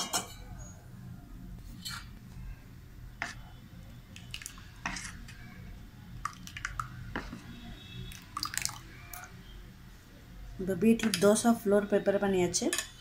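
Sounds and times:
wet batter stirring: 0:03.1 - 0:09.3.

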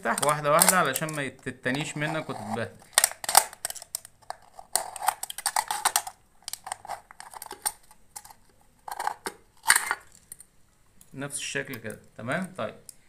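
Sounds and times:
aluminium can crackling as cut: 0:00.0 - 0:10.1.

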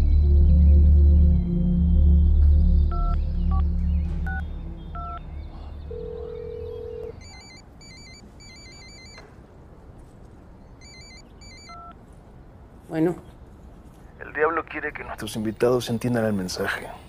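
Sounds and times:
ring-back tone: 0:05.9 - 0:09.2
warbling electronic ringtone: 0:05.9 - 0:09.2, 0:10.8 - 0:11.9
phone keypad beeps: 0:06.0 - 0:09.2, 0:10.8 - 0:12.0.

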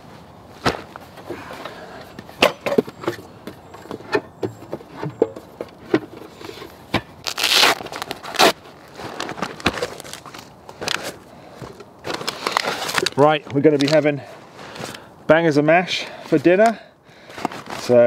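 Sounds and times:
nylon pouches rustling: 0:06.3 - 0:11.3, 0:12.0 - 0:15.0, 0:17.3 - 0:18.0.

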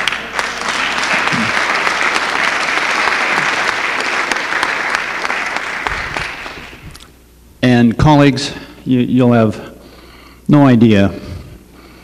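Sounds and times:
crowd applause: 0:00.0 - 0:06.8.

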